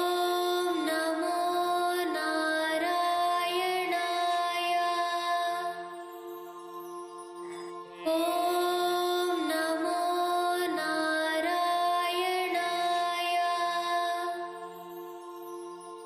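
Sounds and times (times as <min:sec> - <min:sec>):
person chanting devotional line: 0:00.0 - 0:16.0.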